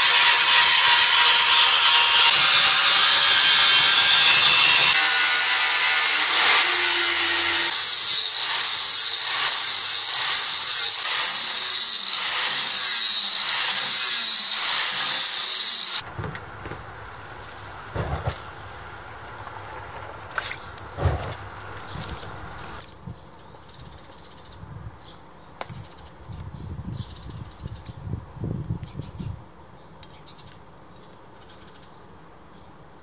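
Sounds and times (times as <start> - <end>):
angle grinder grinding steel: 0.0 - 16.0.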